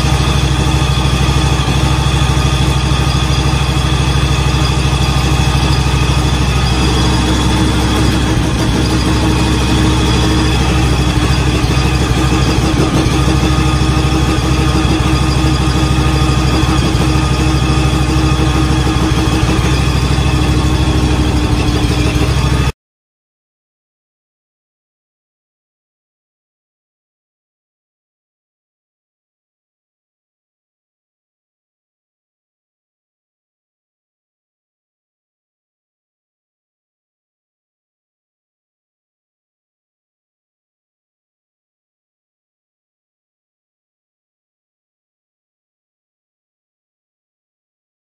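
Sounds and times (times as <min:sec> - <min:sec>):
lawn tractor engine idling: 0:00.0 - 0:22.7.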